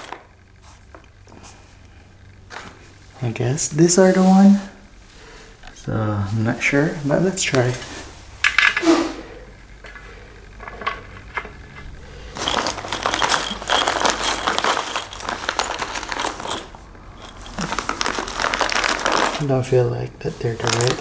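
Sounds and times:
screws rattling in plastic bag: 0.0s - 0.2s, 12.3s - 19.5s, 20.6s - 21.0s.

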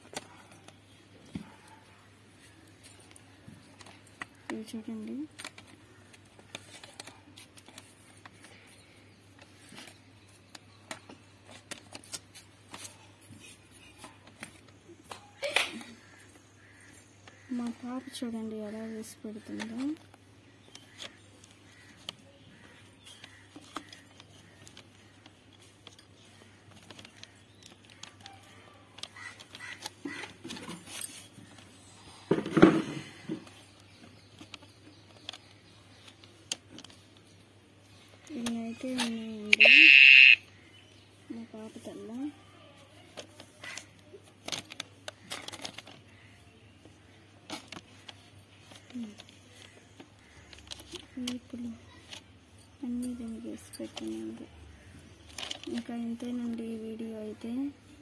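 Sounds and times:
paper rustle: 43.0s - 52.3s, 53.8s - 56.6s.

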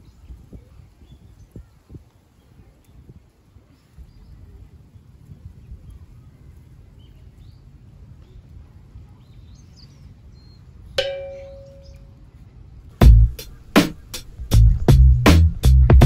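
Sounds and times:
low outdoor rumble: 1.6s - 16.0s
bird chirps: 9.1s - 12.2s
ringing tone: 11.0s - 12.0s.

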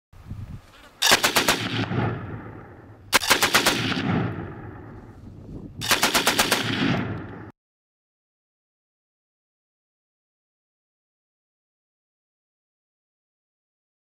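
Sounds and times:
automatic gunfire bursts: 1.0s - 2.5s, 3.1s - 4.6s, 5.8s - 7.5s
gunfire echo: 1.0s - 5.1s, 5.8s - 7.5s.

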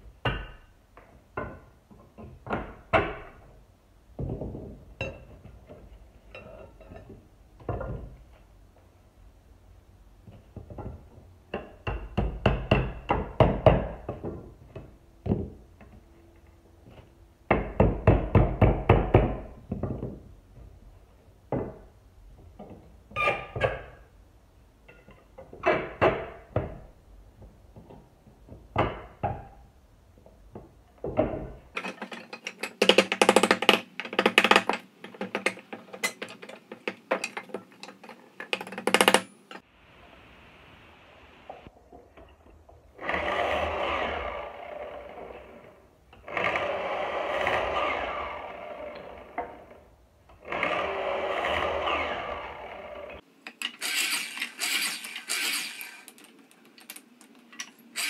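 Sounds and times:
hammer driving nails into wood: 38.5s - 39.3s.

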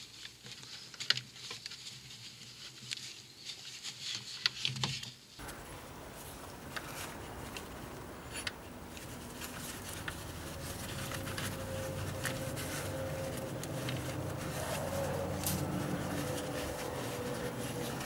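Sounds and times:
faint steady hum: 5.4s - 18.0s
rubbing of rubber belt: 5.4s - 18.0s.

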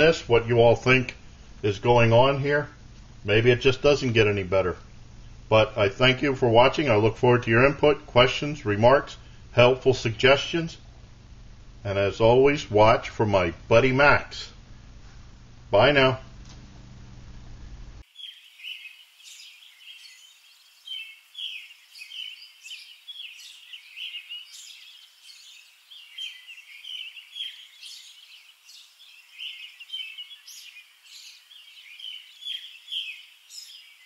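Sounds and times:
birds chirping and singing: 18.1s - 34.0s.

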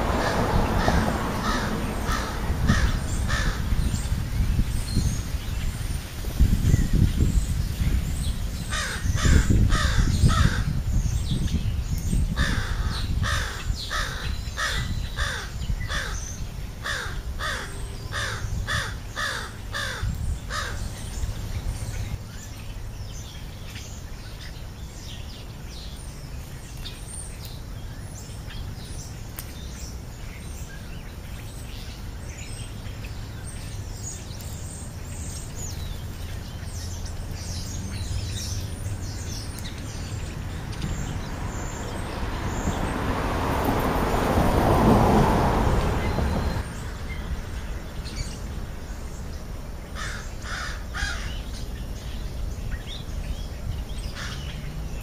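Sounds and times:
small birds chirping: 0.0s - 45.1s, 45.8s - 55.0s
crow cawing: 0.2s - 3.8s, 8.7s - 10.7s, 12.4s - 16.2s, 16.8s - 20.8s, 50.0s - 51.4s.

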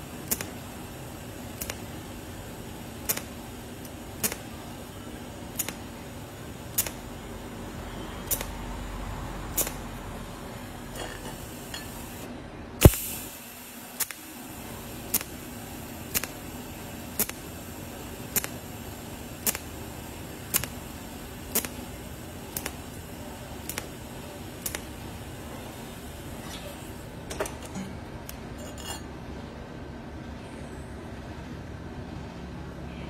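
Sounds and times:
steady welding hum: 0.0s - 33.0s
welding torch clicking: 0.2s - 0.7s, 1.4s - 2.2s, 2.9s - 4.5s, 5.5s - 6.0s, 6.6s - 7.1s, 8.2s - 8.6s, 9.5s - 10.0s, 12.8s - 25.4s.

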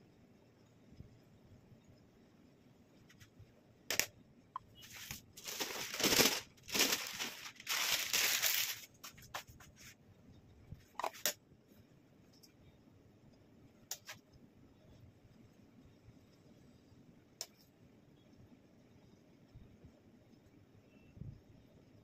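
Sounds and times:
baking paper crinkling: 4.8s - 10.0s.

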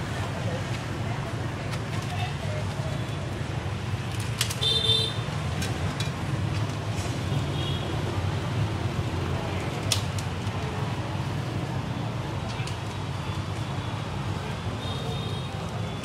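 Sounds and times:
street traffic rumbling: 0.0s - 16.0s.

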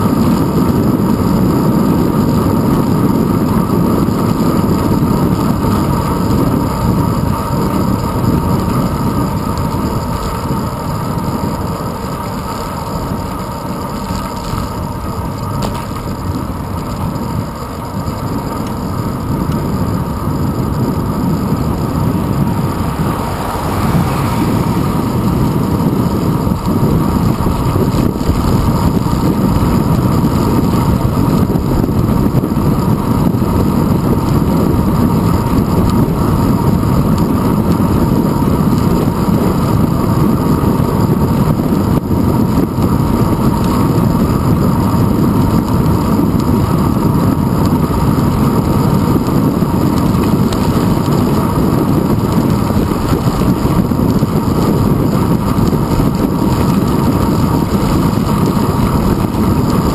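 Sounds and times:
bicycle road rumble on asphalt: 0.0s - 59.9s
wind buffeting microphone: 0.0s - 59.9s.

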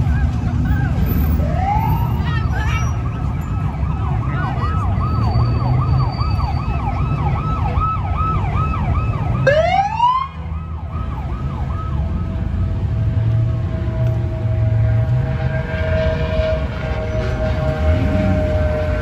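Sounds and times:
police siren yelping: 0.0s - 12.6s
siren whoop: 0.0s - 12.6s, 15.1s - 19.0s
engines rumbling: 0.0s - 19.0s.

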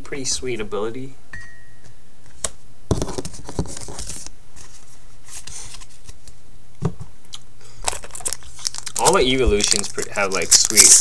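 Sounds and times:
trading cards rustling and tapping: 7.9s - 11.0s.

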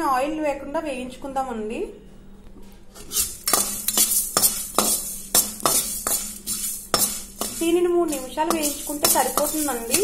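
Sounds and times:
metal spatula scraping pan: 3.0s - 10.0s
seeds rattling in pan: 3.2s - 10.0s.

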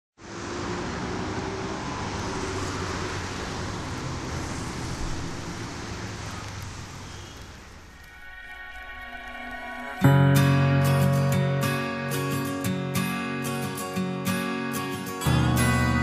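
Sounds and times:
passing cars hum: 0.2s - 16.0s
soft music: 8.0s - 16.0s.

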